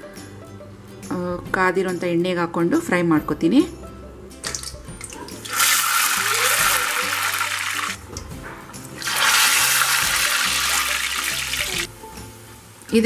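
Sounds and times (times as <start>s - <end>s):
faint background music: 0.0s - 13.0s
food sizzling in hot oil: 5.3s - 8.0s, 8.8s - 13.0s.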